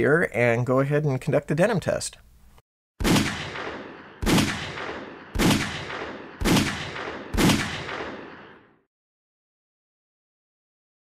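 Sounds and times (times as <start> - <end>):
pistol shots with echo: 3.0 - 8.8.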